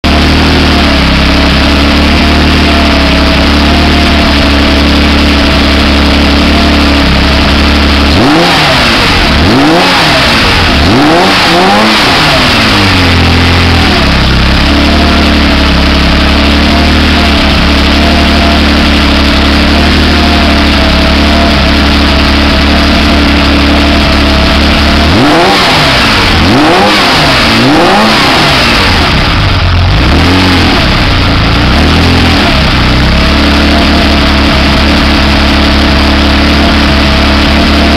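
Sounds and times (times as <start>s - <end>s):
car engine idling and revving: 0.0s - 37.9s.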